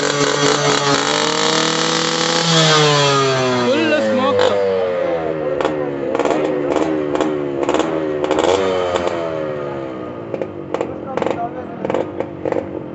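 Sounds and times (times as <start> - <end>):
exhaust pops: 0.0 - 4.6, 10.2 - 12.9
motorcycle engine revving: 0.0 - 12.9.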